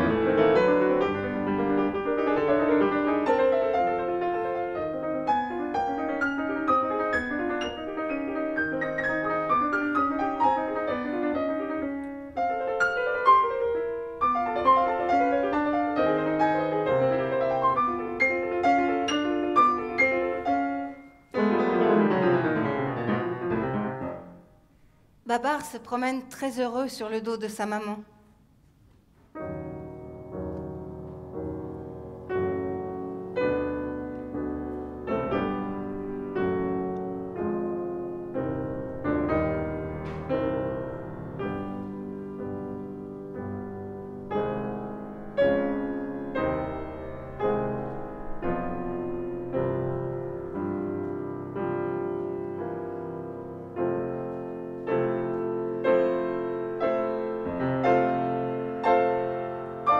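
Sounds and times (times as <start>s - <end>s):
solo classical piano: 0.0s - 25.2s, 28.8s - 59.9s.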